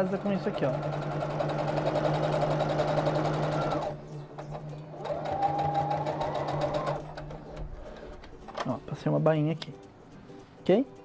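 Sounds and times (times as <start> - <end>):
sewing machine stitching: 0.0 - 7.6.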